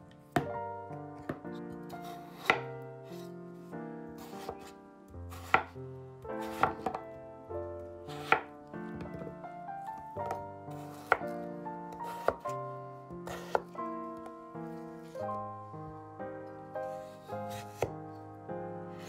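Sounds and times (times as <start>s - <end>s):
soft piano music: 0.0s - 19.0s
knife chopping on wooden board: 1.2s - 2.7s, 4.2s - 4.7s, 5.3s - 5.8s, 6.4s - 7.0s, 8.1s - 9.3s, 10.2s - 11.3s, 11.9s - 12.5s, 13.3s - 13.7s, 17.5s - 17.9s.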